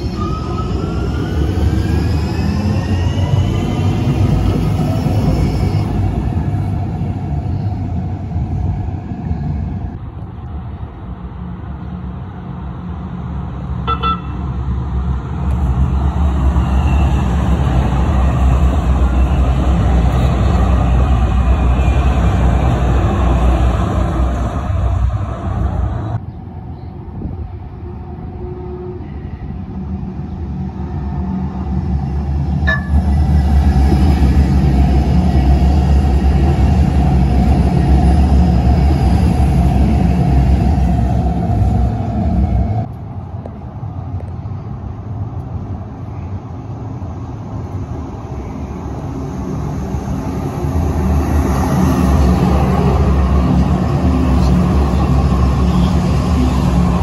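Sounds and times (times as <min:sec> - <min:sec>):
light rail train rumbling: 0:00.0 - 0:57.0
train bell ring: 0:32.6 - 0:33.2.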